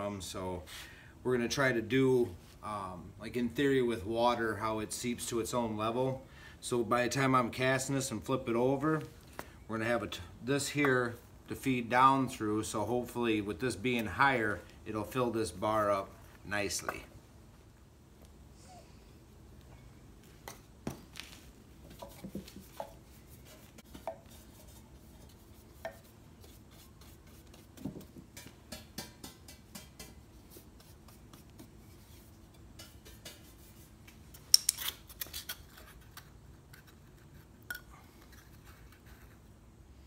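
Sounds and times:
brush strokes on pan: 21.9 - 27.8, 29.7 - 34.2.

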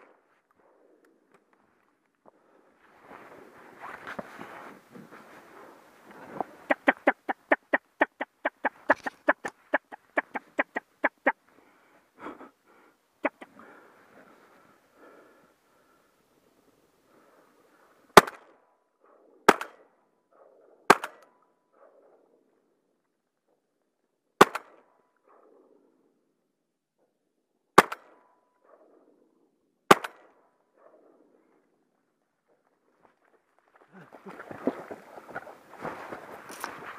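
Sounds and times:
quack-like notes: 6.7 - 11.4, 13.2 - 13.6
shotgun shots: 19.5 - 19.8, 20.9 - 21.2, 27.8 - 28.2, 29.9 - 30.3.

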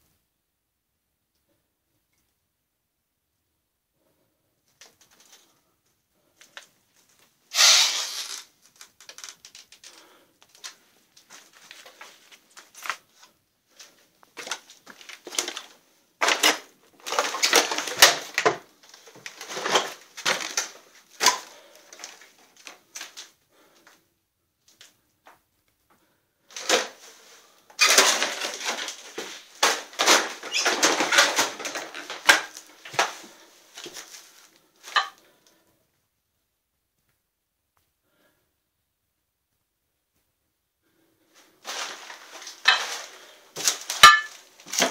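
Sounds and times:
footsteps crunching over debris: 9.3 - 23.3, 26.5 - 35.2, 41.4 - 44.9.

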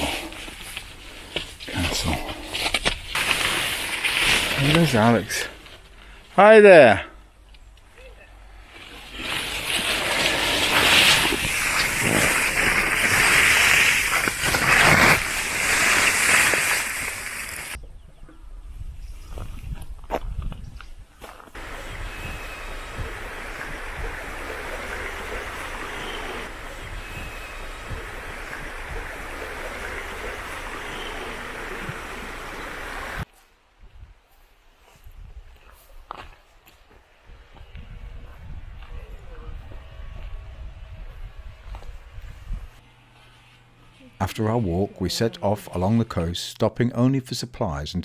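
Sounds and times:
undergrowth rustling against camera: 0.0 - 6.3, 8.6 - 17.8
river flowing over rocks: 21.6 - 33.2.

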